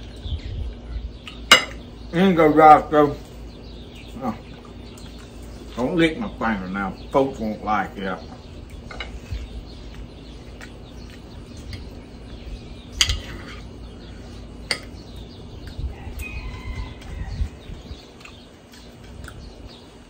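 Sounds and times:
cutlery scraping plate: 13.0s - 13.6s.

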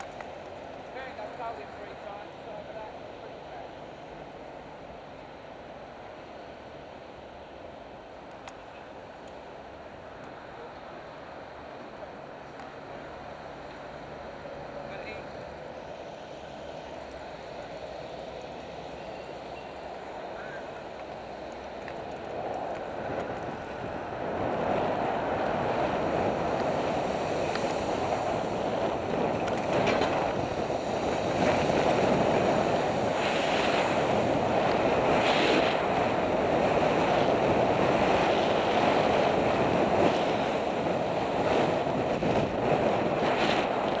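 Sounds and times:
road traffic: 0.0s - 44.0s
wind rushing over microphone: 9.0s - 44.0s.

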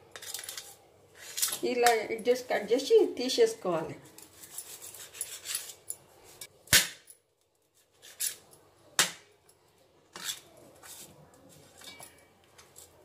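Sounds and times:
knife scraping a steel plate: 4.2s - 5.8s, 8.0s - 8.4s, 10.1s - 11.1s.

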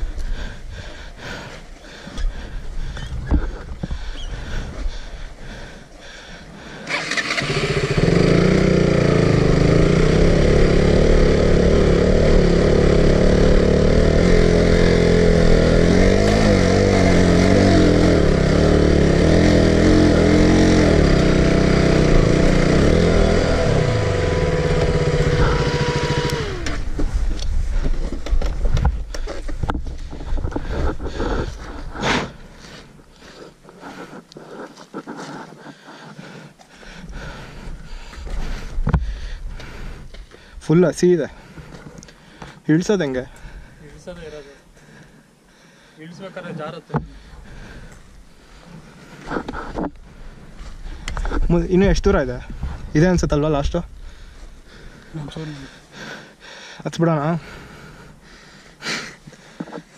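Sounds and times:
motorcycle engine revving: 6.9s - 31.7s.

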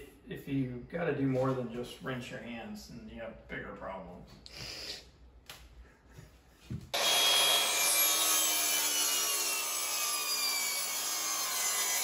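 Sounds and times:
saw cutting: 6.9s - 12.0s.

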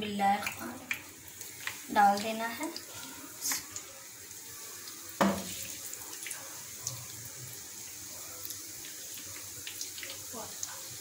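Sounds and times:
dough sizzling in hot oil: 0.0s - 11.0s
loud sizzle of dough dropped in: 5.2s - 5.8s.

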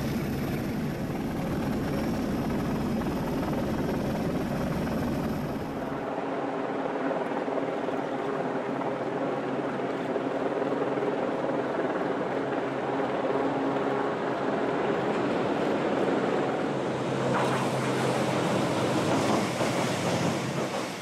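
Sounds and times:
diesel-electric locomotive droning: 14.8s - 21.0s.

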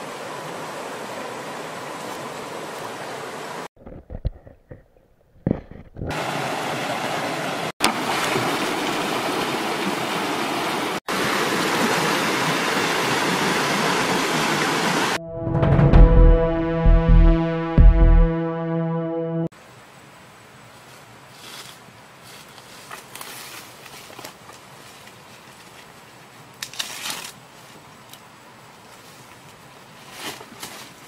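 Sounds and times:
stream water rushing over rocks: 0.0s - 3.7s, 6.1s - 15.2s
synthesizer music: 15.2s - 19.5s.

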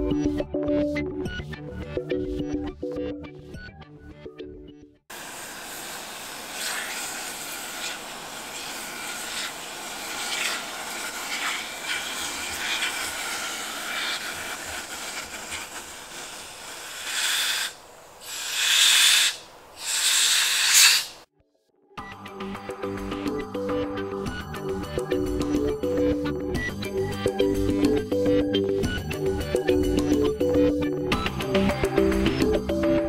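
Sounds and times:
aerosol spray hissing: 5.1s - 21.3s.

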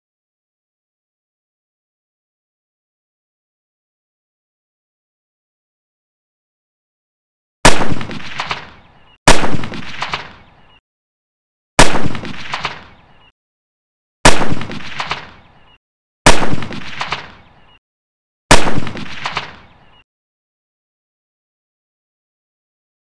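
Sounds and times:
rifle shots: 7.6s - 10.5s, 11.8s - 13.0s, 14.2s - 15.5s, 16.2s - 17.5s, 18.5s - 19.7s.

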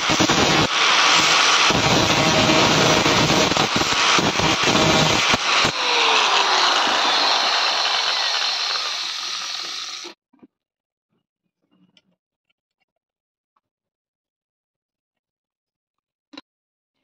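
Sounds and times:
angle grinder cutting metal: 0.0s - 10.2s.

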